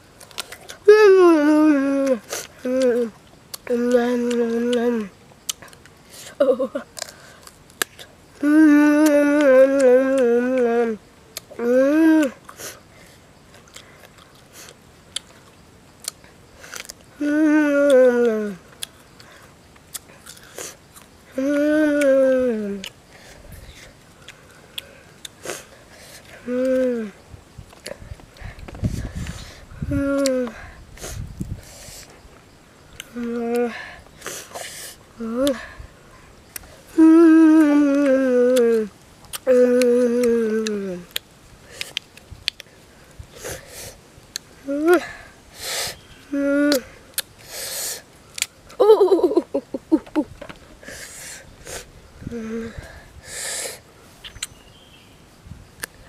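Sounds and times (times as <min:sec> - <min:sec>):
boy chewing crunchy fruit: 0:00.0 - 0:54.8
boy's wordless vocal sound: 0:00.7 - 0:05.2, 0:08.4 - 0:12.5, 0:17.1 - 0:18.7, 0:21.3 - 0:22.9, 0:26.2 - 0:27.2, 0:27.9 - 0:31.2, 0:33.0 - 0:34.0, 0:35.1 - 0:35.8, 0:36.9 - 0:41.2, 0:44.6 - 0:45.4, 0:46.2 - 0:47.9, 0:52.2 - 0:53.8
lip-smacking and chewing: 0:02.4 - 0:06.3, 0:13.5 - 0:17.1, 0:18.7 - 0:21.1, 0:37.9 - 0:39.5, 0:40.2 - 0:42.7, 0:46.7 - 0:47.7, 0:54.2 - 0:54.6.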